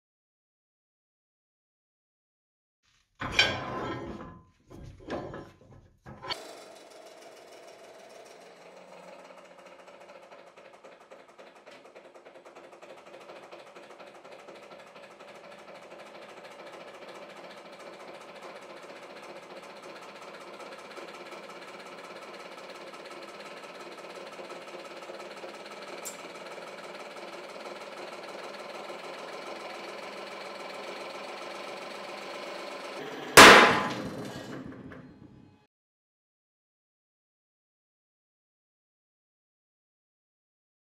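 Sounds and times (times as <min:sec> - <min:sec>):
hydraulic press droning: 0:03.2 - 0:35.6.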